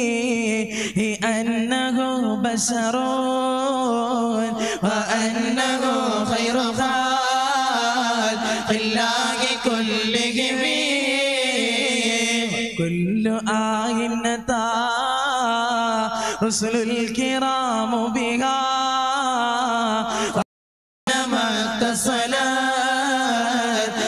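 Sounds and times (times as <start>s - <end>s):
man chanting through pa system: 4.8s - 15.1s.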